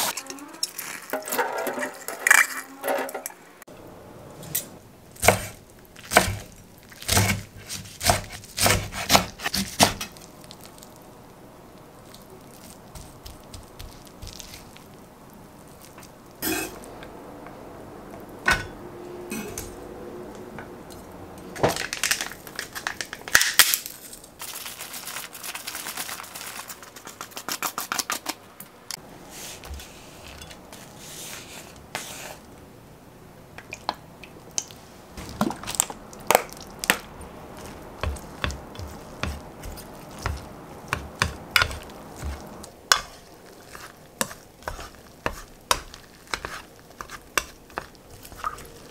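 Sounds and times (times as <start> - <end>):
knife scraping cutting board: 4.4 - 10.1, 29.3 - 32.5, 37.6 - 47.9.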